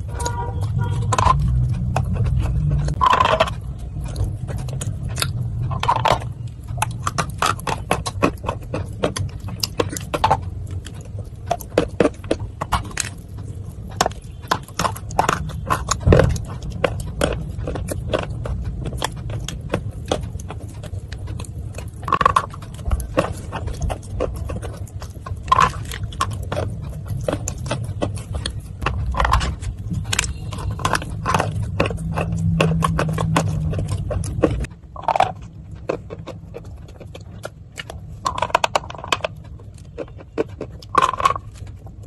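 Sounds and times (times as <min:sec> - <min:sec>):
crunching and chewing clay: 0:00.0 - 0:42.0.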